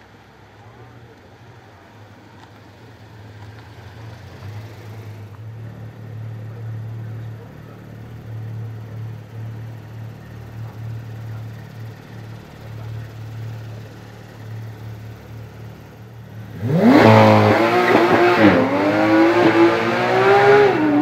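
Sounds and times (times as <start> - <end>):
car engines droning at low revs: 0.0 - 21.0.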